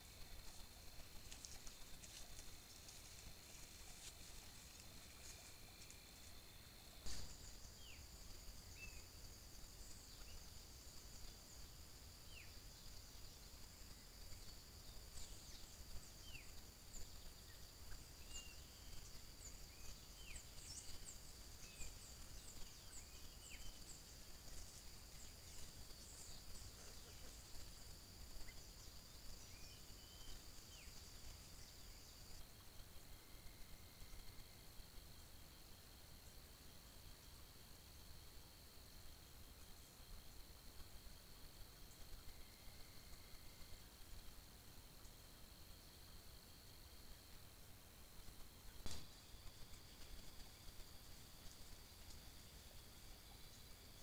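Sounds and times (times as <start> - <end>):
insect drone: 0.0 - 54.0
sharp click: 48.8 - 49.2.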